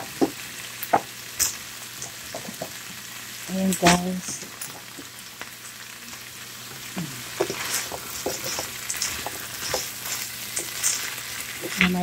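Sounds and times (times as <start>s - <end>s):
food sizzling in a frying pan: 0.0s - 12.0s
wooden spatula scraping a pan: 7.3s - 12.0s.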